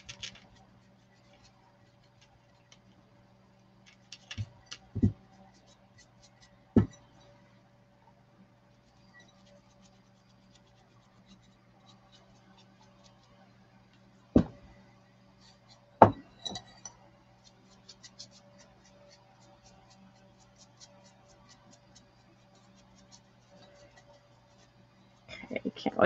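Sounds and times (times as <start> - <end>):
steady low hum: 0.0 - 26.0
knocks on a tabletop: 14.4 - 14.6, 16.0 - 16.2.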